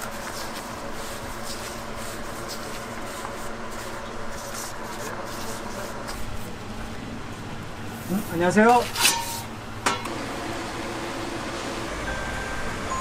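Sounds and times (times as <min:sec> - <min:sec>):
hands rubbing pizza dough: 0:00.0 - 0:09.0
steady machine hum: 0:00.0 - 0:13.0.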